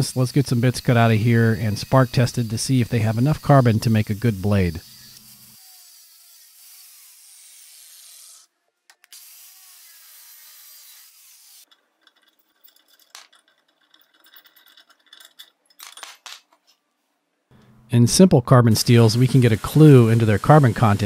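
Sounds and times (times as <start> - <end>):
angle grinder cutting steel: 0.0 - 8.5, 9.1 - 11.7, 18.9 - 21.0
metal pieces clinking: 11.6 - 16.8.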